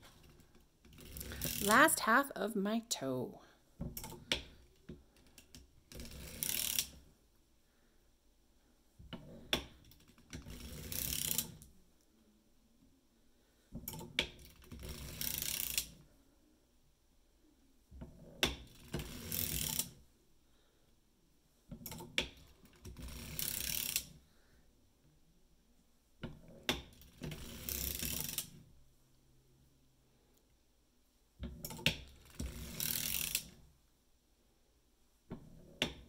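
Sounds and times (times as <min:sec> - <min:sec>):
knitting machine clattering: 0:00.0 - 0:01.8, 0:05.2 - 0:07.0, 0:31.6 - 0:33.5.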